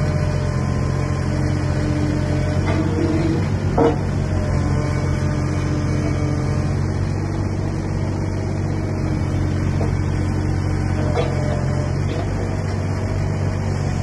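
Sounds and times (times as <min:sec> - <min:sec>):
excavator diesel engine humming: 0:00.0 - 0:14.0.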